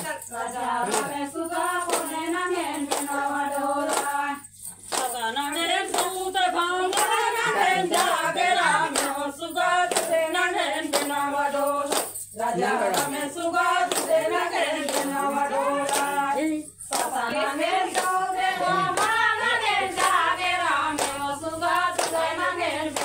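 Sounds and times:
hand claps: 0:00.0 - 0:23.0
women singing a folk song: 0:00.0 - 0:23.0.

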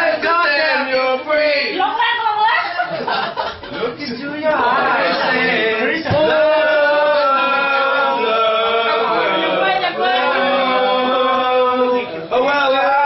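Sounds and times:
men singing together: 0:00.0 - 0:01.4, 0:04.4 - 0:13.0.

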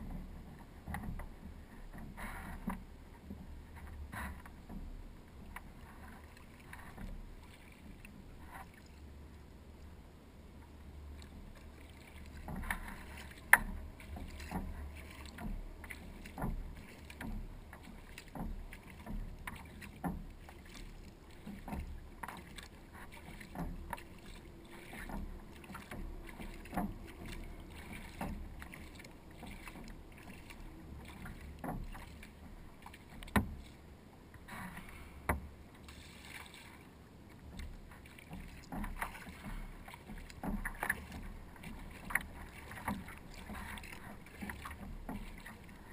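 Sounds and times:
kayak paddle splashing in water: 0:00.0 - 0:45.9
water drips: 0:10.6 - 0:33.8.

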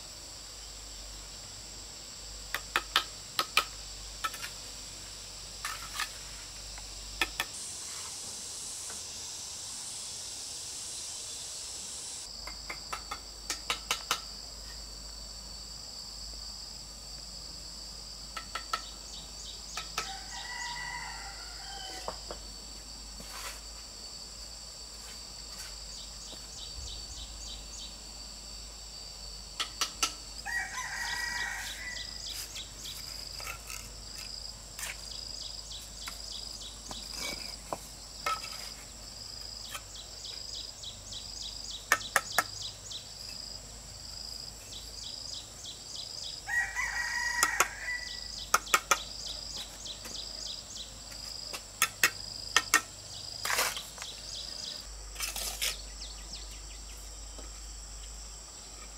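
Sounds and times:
high insect drone: 0:00.0 - 0:58.9
rooster crowing: 0:20.0 - 0:22.2, 0:30.4 - 0:32.3, 0:46.5 - 0:48.4.

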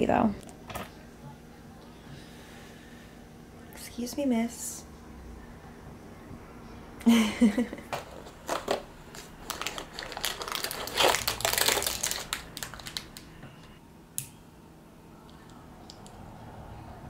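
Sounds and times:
cardboard packaging rustling: 0:08.0 - 0:13.3.

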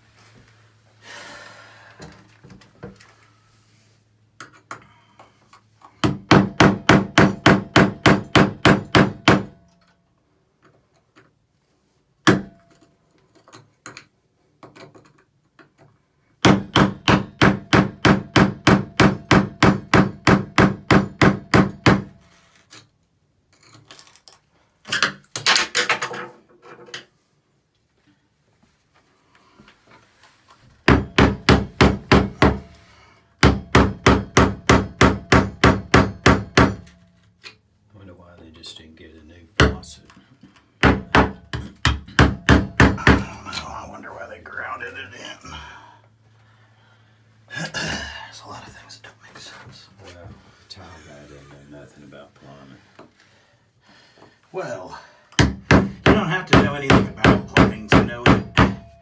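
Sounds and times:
hammer striking a screwdriver: 0:16.4 - 0:22.1, 0:33.4 - 0:37.6, 0:55.4 - 0:59.0.

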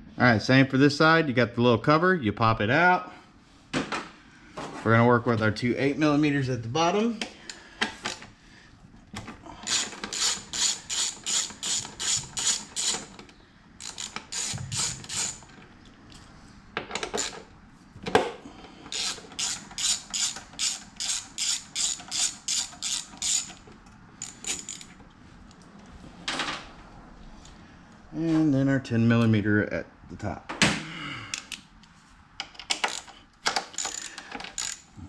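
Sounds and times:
socket ratchet clicking: 0:09.6 - 0:15.5, 0:17.0 - 0:17.5, 0:18.9 - 0:23.6, 0:24.2 - 0:24.9, 0:32.5 - 0:34.9.

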